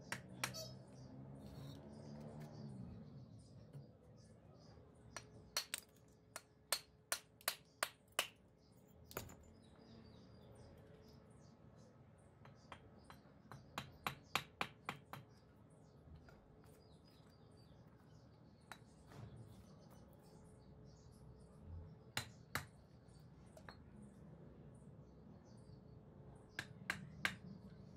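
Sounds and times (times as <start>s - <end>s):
hammer striking brick: 0.0s - 0.7s, 5.1s - 8.4s, 12.4s - 15.4s, 22.2s - 22.8s, 26.5s - 27.5s.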